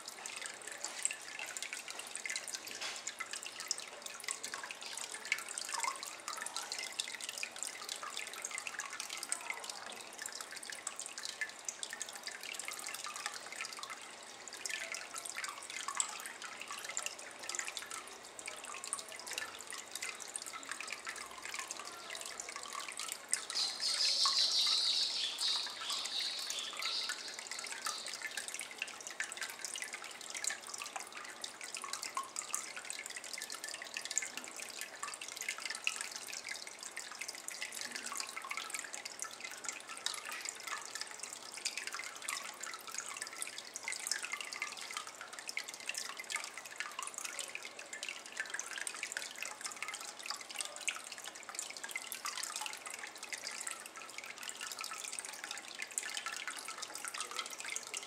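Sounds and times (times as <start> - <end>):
water dripping into basin: 0.0 - 58.0.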